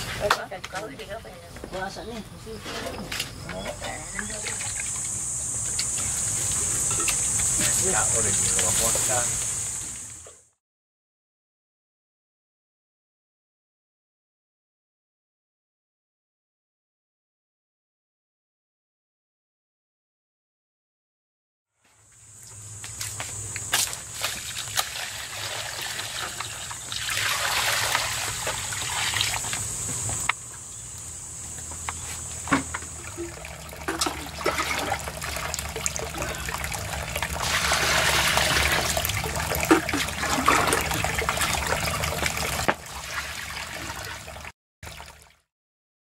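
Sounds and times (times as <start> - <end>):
water trickling into basin: 3.5 - 10.2, 24.2 - 29.6, 32.5 - 45.4
water pouring and splashing: 3.9 - 10.3, 23.0 - 30.3, 32.2 - 45.5.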